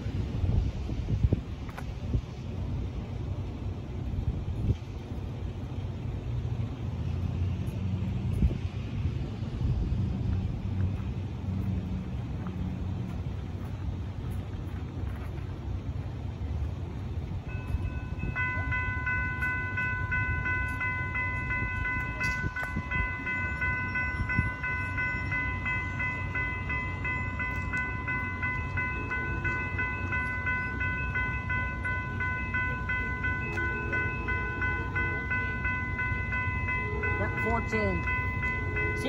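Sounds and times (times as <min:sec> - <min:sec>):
crossing warning bell ringing: 0:16.6 - 0:39.0.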